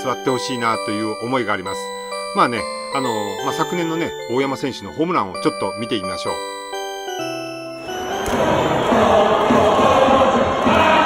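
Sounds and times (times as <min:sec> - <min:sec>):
chime-like music jingle: 0:00.0 - 0:09.6
stadium crowd noise: 0:08.3 - 0:11.0.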